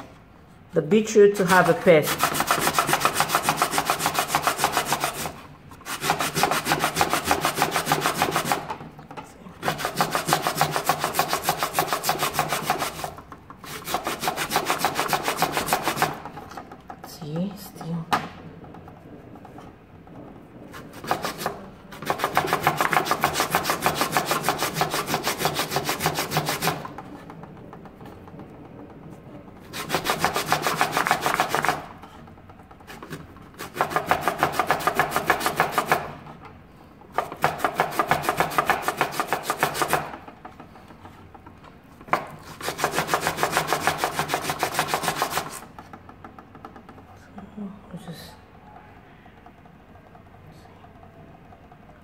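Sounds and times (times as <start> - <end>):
beetroot grated on metal grater: 1.1 - 18.1, 20.7 - 27.4, 29.6 - 36.4, 37.1 - 47.1.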